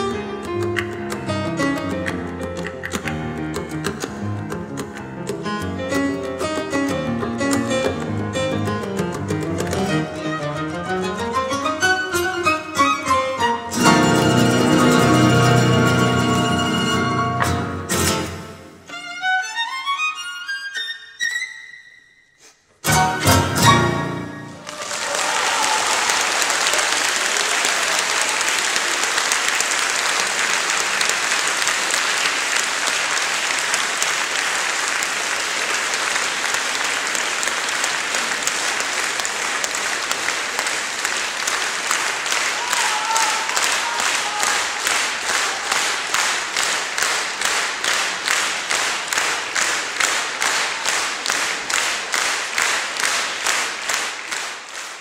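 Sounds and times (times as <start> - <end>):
rhythmic unison clapping: 0.4 - 10.0, 24.6 - 55.0
audience applauding: 13.8 - 18.5, 24.0 - 55.0.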